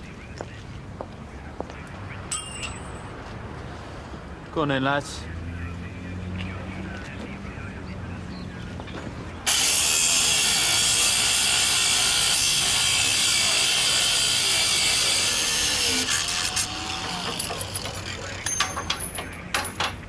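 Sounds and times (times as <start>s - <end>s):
angle grinder cutting steel chain: 9.5s - 19.3s.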